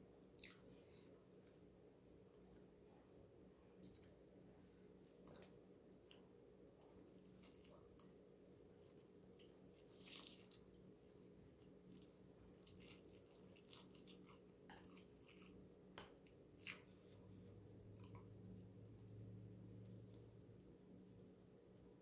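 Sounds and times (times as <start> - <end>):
noodles being slurped and chewed: 7.2 - 10.7, 11.9 - 15.6.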